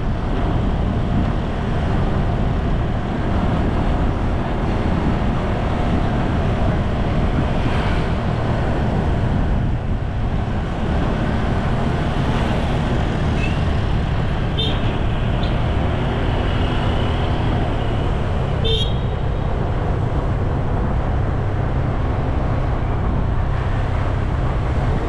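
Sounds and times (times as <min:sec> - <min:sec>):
wind buffeting microphone: 0:00.0 - 0:18.6
road and engine noise: 0:00.0 - 0:25.0.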